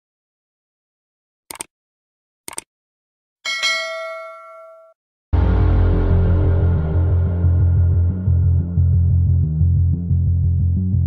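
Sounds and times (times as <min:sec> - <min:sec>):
notification bell chime: 0:03.5 - 0:04.9.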